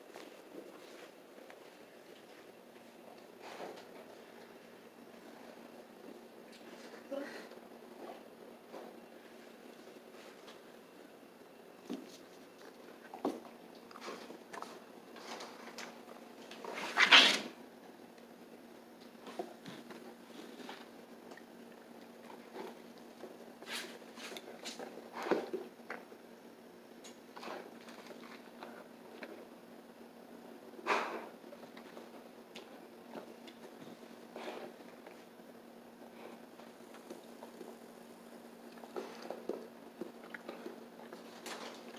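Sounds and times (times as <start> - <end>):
dog sniffing and snuffling: 0.1 - 5.7, 30.8 - 35.3, 38.7 - 41.9.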